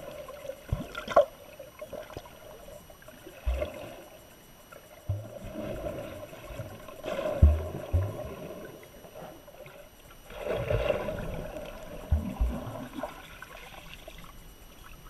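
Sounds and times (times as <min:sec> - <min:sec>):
muffled underwater swishing: 0:00.0 - 0:15.0
low underwater thumps: 0:05.1 - 0:06.0, 0:07.4 - 0:08.5, 0:11.8 - 0:13.1.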